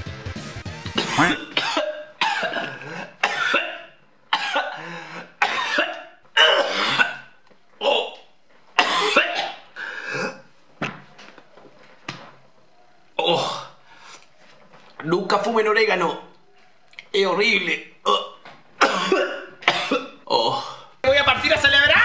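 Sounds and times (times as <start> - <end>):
man coughing hard: 1.0 - 8.2, 8.8 - 10.4, 18.0 - 20.8.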